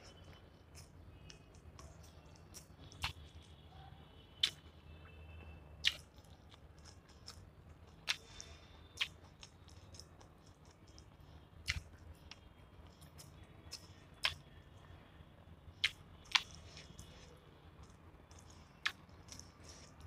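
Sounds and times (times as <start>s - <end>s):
person chewing food: 0.0s - 3.6s, 5.8s - 14.9s, 15.8s - 20.0s
fingers squishing curry into rice: 0.0s - 3.7s, 5.8s - 15.0s, 15.8s - 20.0s
wet mouth smacks: 5.8s - 6.0s.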